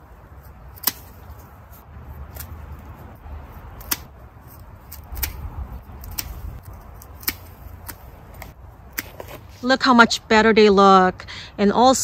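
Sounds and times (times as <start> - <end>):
pruning shears snipping stems: 0.4 - 9.7.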